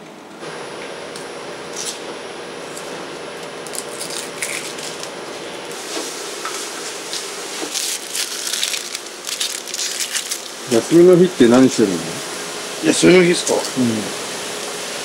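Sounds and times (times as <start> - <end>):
faint hum: 0.0 - 15.0
steady hiss: 5.7 - 15.0.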